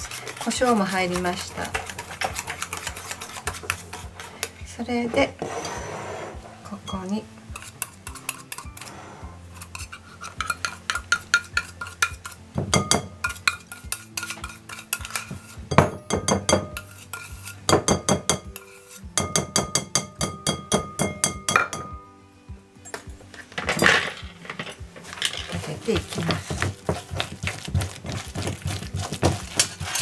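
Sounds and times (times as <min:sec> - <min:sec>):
whisk clinking on steel bowl: 0:00.0 - 0:04.0, 0:09.6 - 0:21.8, 0:26.1 - 0:30.0.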